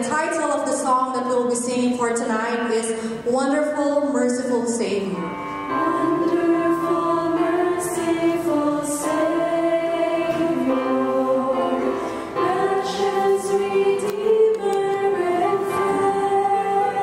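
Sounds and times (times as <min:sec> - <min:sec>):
women singing in harmony: 0:05.7 - 0:17.0.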